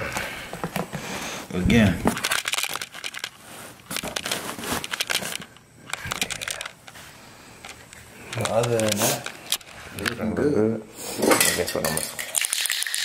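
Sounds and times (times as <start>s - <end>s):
cardboard and plastic crinkling: 1.8s - 7.0s, 8.3s - 9.8s.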